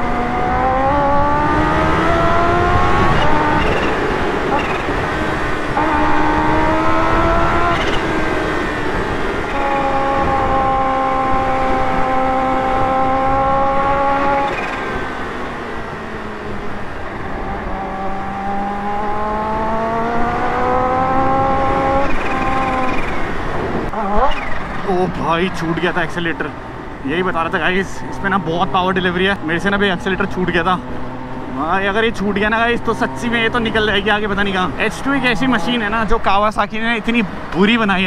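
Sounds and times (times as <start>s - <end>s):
wind on microphone: 0.0s - 15.1s, 16.6s - 24.9s
motorcycle engine revving: 0.0s - 36.3s.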